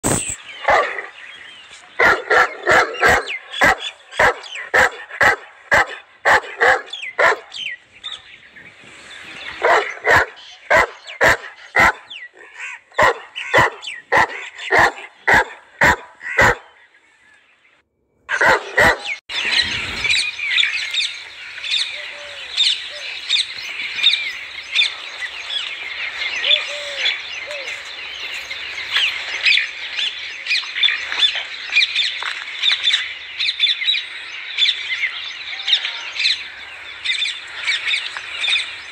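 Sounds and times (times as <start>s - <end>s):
chorus of chirping birds: 0.0s - 38.9s
dog barking: 0.6s - 1.1s, 2.0s - 8.2s, 9.6s - 12.2s, 13.0s - 16.8s, 18.3s - 19.2s.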